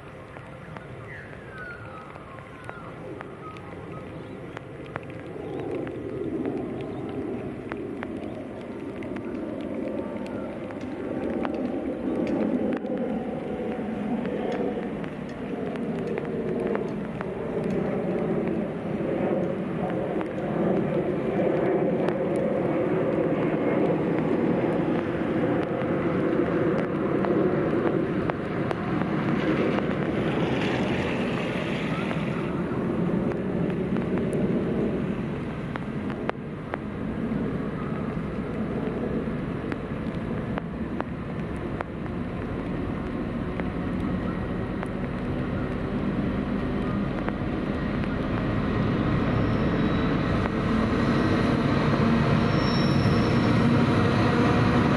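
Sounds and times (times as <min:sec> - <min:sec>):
diesel locomotive engines droning: 0:42.9 - 0:54.9.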